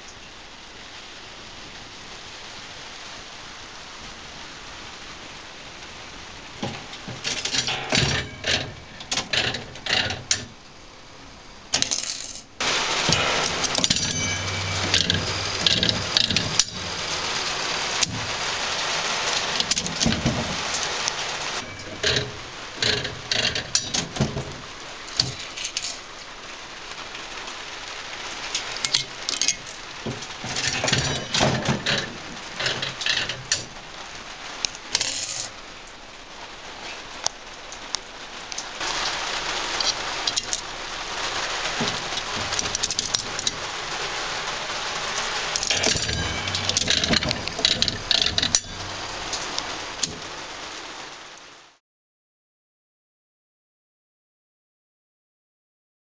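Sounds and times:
slot machine reels clicking: 6.6 - 10.4, 11.8 - 17.4, 21.6 - 24.3, 30.3 - 33.6, 45.6 - 49.1
coins clattering into metal tray: 11.8 - 16.9, 25.2 - 26.0, 30.4 - 32.0, 35.0 - 35.5, 45.6 - 48.9.

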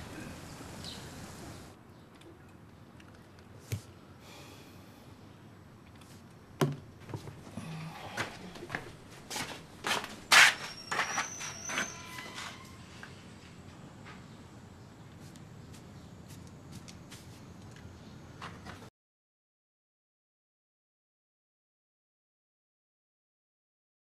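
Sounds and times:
footsteps: 7.0 - 12.7.

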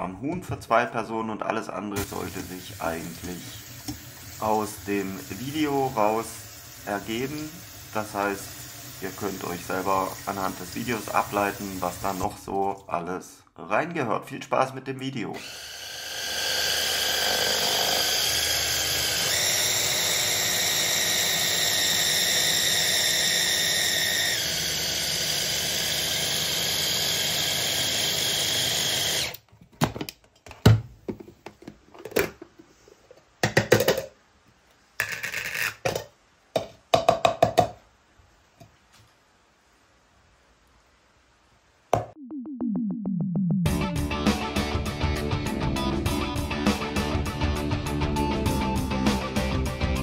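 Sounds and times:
plastic knocks and clatters: 29.5 - 34.2, 35.1 - 37.8.

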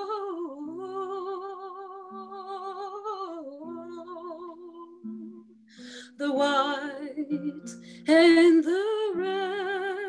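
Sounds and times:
woman singing with vibrato: 0.0 - 10.0.

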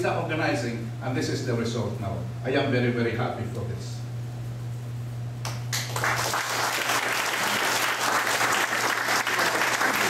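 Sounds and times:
audience applauding: 5.7 - 10.0.

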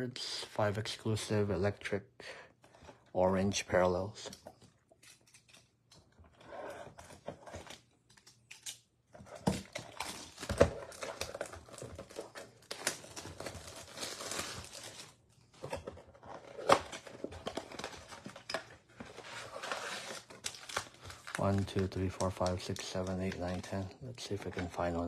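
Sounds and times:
plastic wrappers crinkling and tearing: 6.7 - 25.0
cardboard tear strip ripping: 12.6 - 15.1.

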